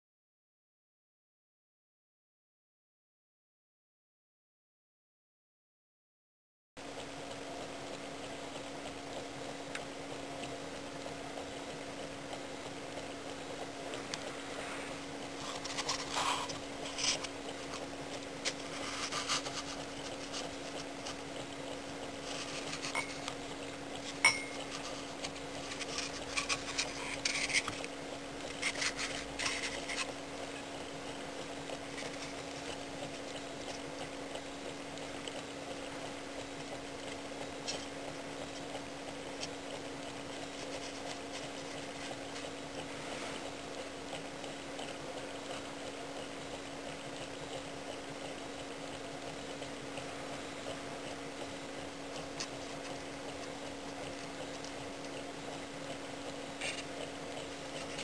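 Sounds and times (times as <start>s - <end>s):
steady low hum: 6.8s - 58.0s.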